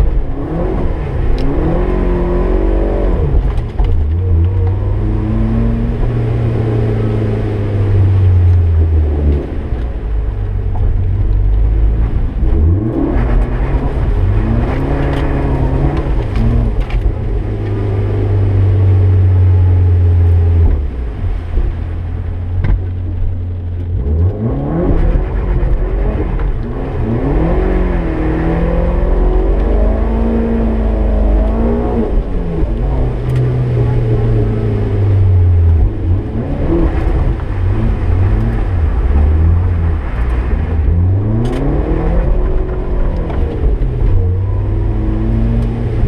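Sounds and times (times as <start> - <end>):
car engine revving: 0.0 - 46.0.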